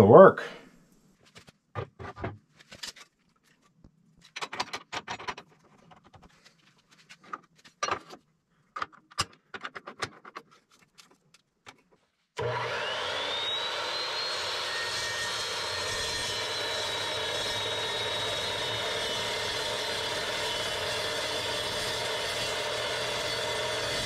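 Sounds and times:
saw motor whining: 0:12.4 - 0:24.0.

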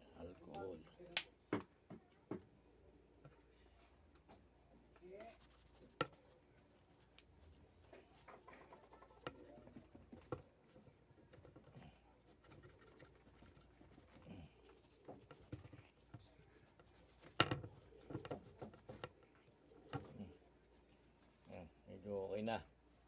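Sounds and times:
cloth rubbing and scratching: 0:05.2 - 0:22.6.

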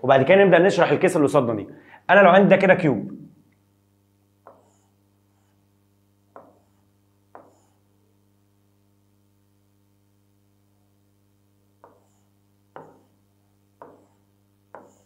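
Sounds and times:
faint steady hum: 0:00.0 - 0:15.0
stylus tapping on glass: 0:12.8 - 0:13.1.

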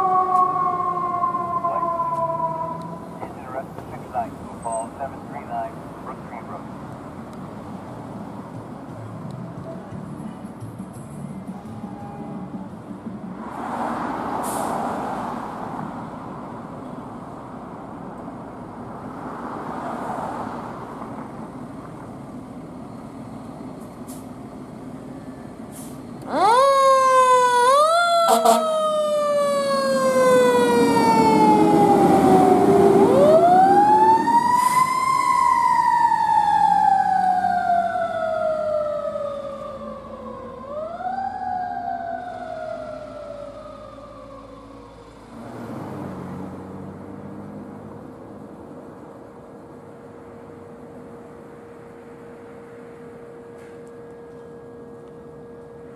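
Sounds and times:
fire truck siren: 0:00.0 - 0:06.7, 0:25.2 - 0:46.5
traffic noise: 0:00.0 - 0:55.9.

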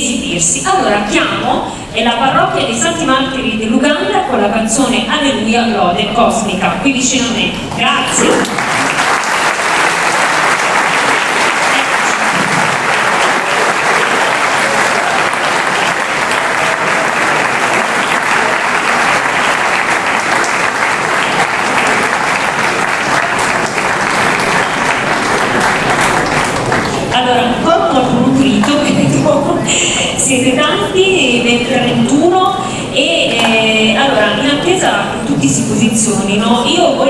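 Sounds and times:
audience applauding: 0:08.2 - 0:27.1.

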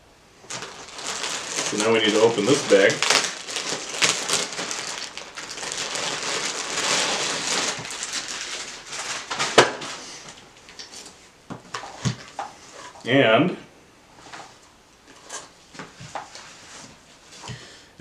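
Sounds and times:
plastic bag crinkling: 0:00.4 - 0:13.0.

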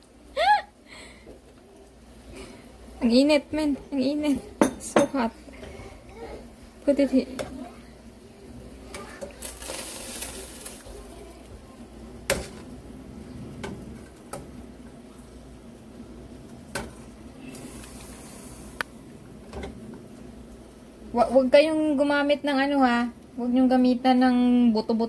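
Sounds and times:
soft hiss: 0:16.7 - 0:21.0.

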